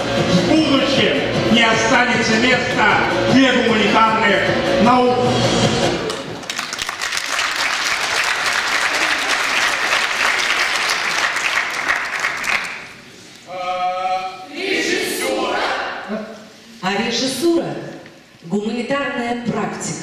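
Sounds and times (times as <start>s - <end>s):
audience applauding: 6.1s - 13.2s.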